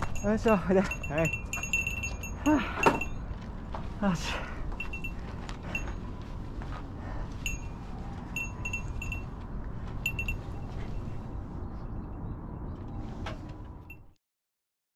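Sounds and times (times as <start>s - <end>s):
dog collar bell tinkling: 0.0s - 3.2s, 4.8s - 6.0s, 7.4s - 7.8s, 8.4s - 9.4s, 10.0s - 10.5s
steady low rumble: 0.0s - 14.0s.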